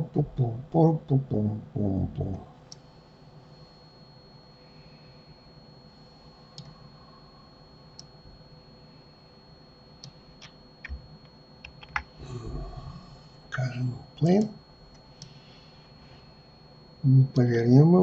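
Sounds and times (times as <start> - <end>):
faint electrical hum: 0.0 - 18.0
mouse and keyboard clicks: 11.6 - 12.1.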